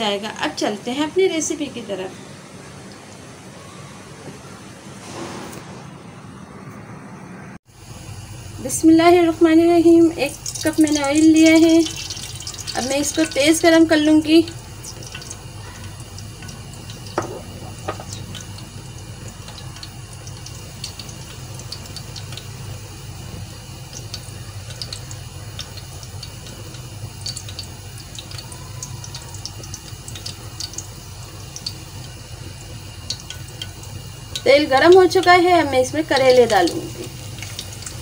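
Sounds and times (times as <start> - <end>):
oil ticking and crackling in pan: 7.7 - 38.0.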